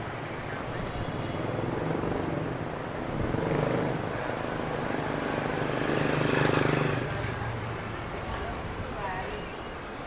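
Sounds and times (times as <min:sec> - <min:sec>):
vehicle engine droning: 0:00.0 - 0:08.0.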